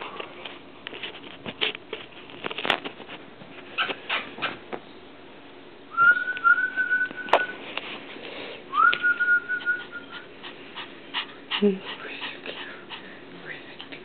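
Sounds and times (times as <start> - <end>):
person whistling: 5.9 - 7.6, 8.7 - 10.2.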